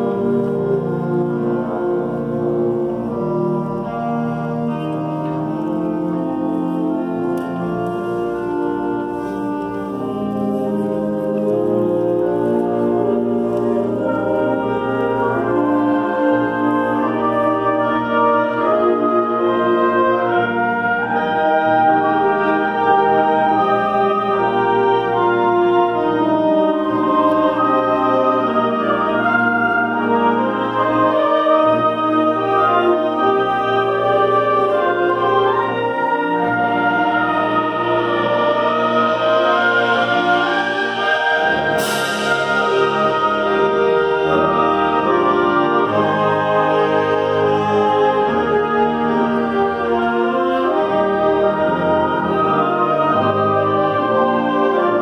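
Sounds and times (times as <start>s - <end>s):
concert band playing sustained chords: 0.0s - 55.0s
low brass: 0.0s - 55.0s
saxophones: 0.0s - 55.0s
concert band playing chords: 38.8s - 47.8s.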